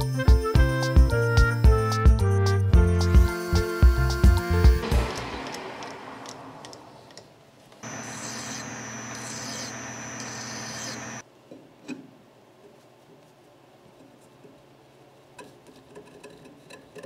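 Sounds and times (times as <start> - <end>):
lathe motor humming with whine: 7.8 - 11.2
file scraping on steel: 7.9 - 11.2.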